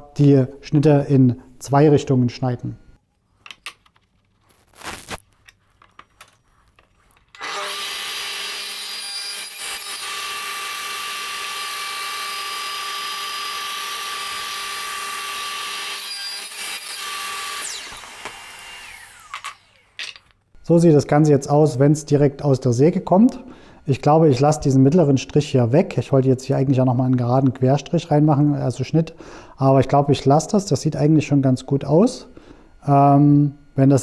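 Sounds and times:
electric saw cutting wood: 7.3 - 20.1
saw spinning down whine: 7.4 - 20.0.

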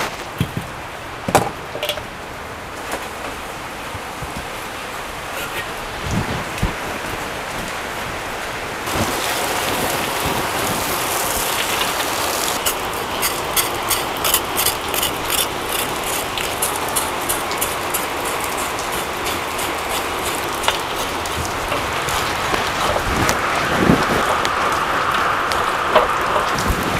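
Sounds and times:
hose water splashing into wok: 8.8 - 26.9
scraping in water: 8.9 - 24.9.

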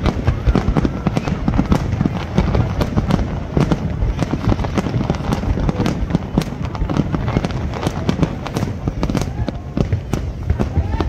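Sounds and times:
fireworks crackling: 0.0 - 11.0.

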